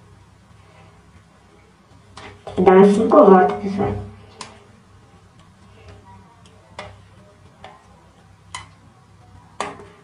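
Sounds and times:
faint sharp clicks and taps: 4.3s - 4.7s, 5.3s - 9.0s.

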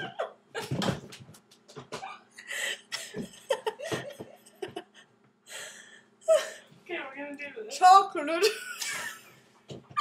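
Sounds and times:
young women laughing: 1.9s - 5.1s, 8.4s - 9.4s.

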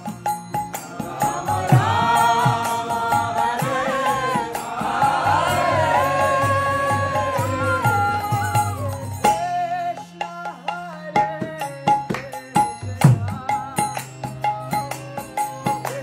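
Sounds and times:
harmonium chords: 0.0s - 16.0s
woman singing a devotional chant: 1.2s - 9.3s.

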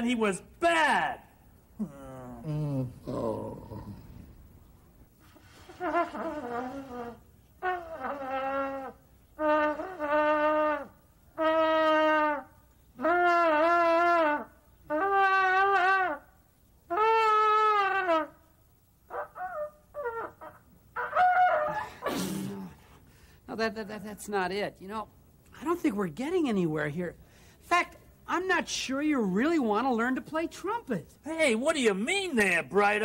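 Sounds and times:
beginner playing trumpet: 5.6s - 16.3s, 16.9s - 18.4s.

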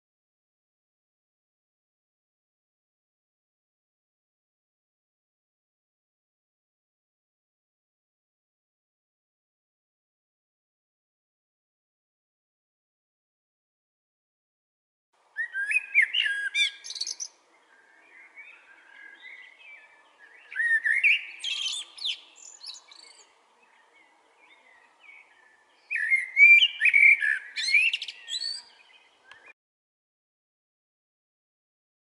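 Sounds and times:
blackbird singing: 15.4s - 29.6s.

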